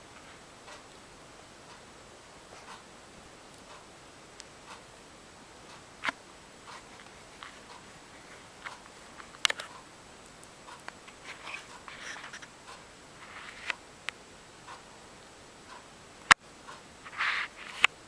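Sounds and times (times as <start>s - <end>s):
soft rustles: 6.0s - 9.8s, 10.8s - 13.8s, 17.0s - 18.0s
small clicks: 8.6s - 14.8s.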